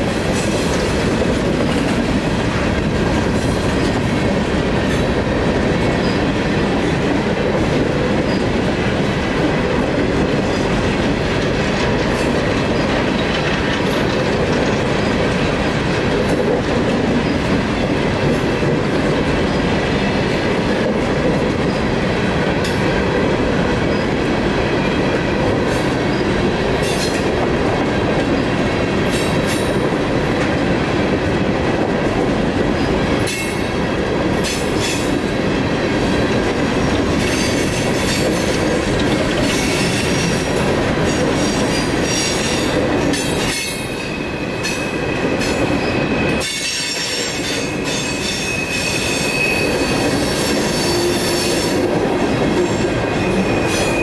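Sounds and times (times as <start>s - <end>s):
train wheels rumbling on rails: 0.0s - 54.0s
clacks over rail joints: 0.2s - 35.2s, 36.0s - 44.0s
high wheel squeal: 43.6s - 51.8s, 53.1s - 54.0s.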